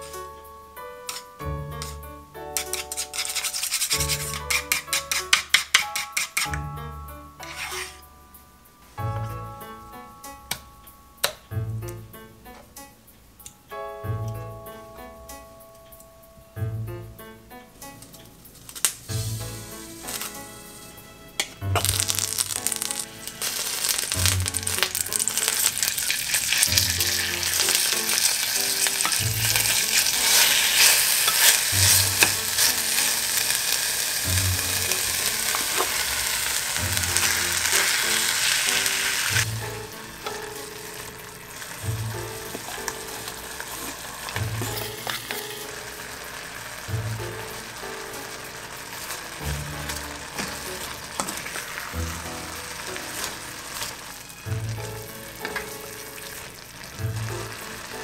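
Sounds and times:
soft music with steady beat: 0.0 - 2.7, 4.0 - 25.9, 38.7 - 58.0
meat sizzling in a pot: 1.1 - 6.6, 7.4 - 8.0, 18.8 - 58.0
stirring: 2.6 - 6.5, 21.8 - 58.0.

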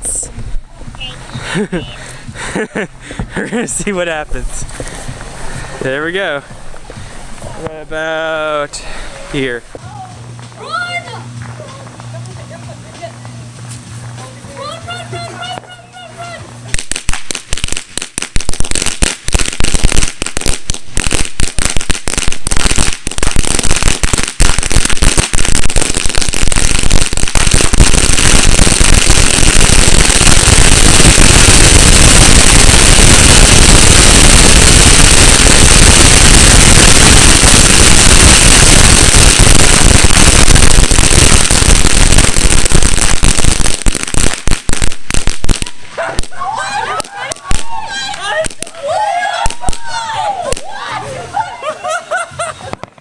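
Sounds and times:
firecrackers banging: 0.0 - 51.2, 51.9 - 53.0.

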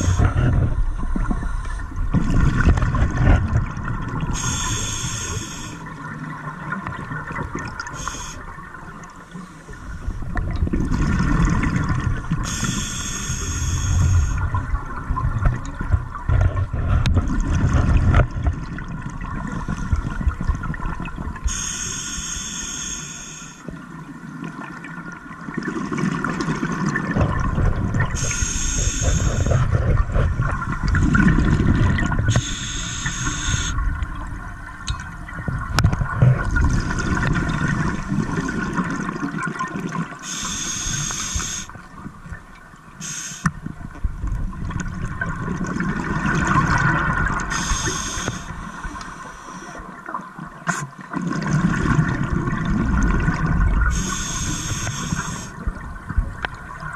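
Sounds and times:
exhaled bubbles rumbling: 0.0 - 4.7, 5.5 - 12.8, 13.4 - 21.6, 23.8 - 40.2, 43.5 - 56.9
regulator inhalation hiss: 4.4 - 5.9, 7.9 - 8.4, 12.4 - 14.4, 21.5 - 23.6, 28.2 - 29.6, 32.3 - 33.8, 40.2 - 41.7, 43.0 - 43.5, 47.5 - 49.8, 53.9 - 55.6.

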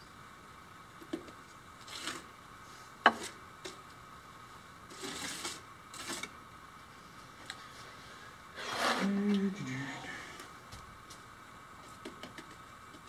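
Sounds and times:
trowel scraping mortar on concrete: 8.6 - 9.2.

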